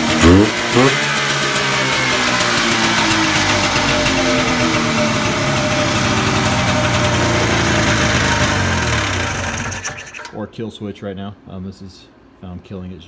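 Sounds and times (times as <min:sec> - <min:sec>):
two-stroke engine idling: 0:00.0 - 0:10.3.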